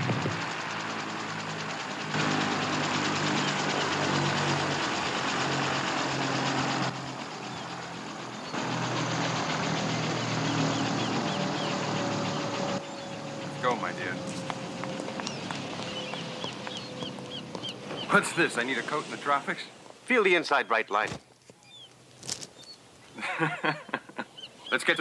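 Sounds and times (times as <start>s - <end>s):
engine running with fast chop: 0.0s - 19.7s.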